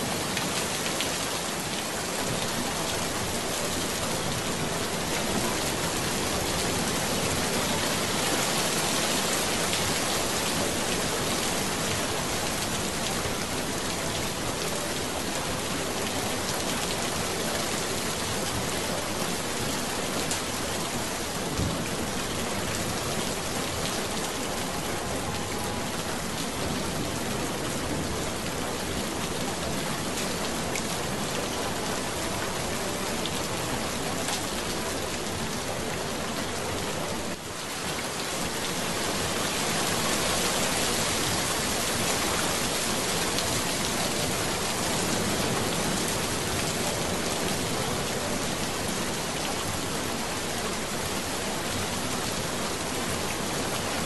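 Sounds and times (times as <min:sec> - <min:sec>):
rain hiss: 0:00.0 - 0:54.0.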